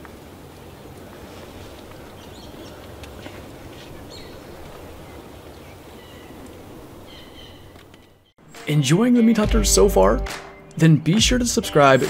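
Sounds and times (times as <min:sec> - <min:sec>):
faint outdoor hiss: 0:00.0 - 0:12.0
steady low rumble: 0:09.5 - 0:10.4.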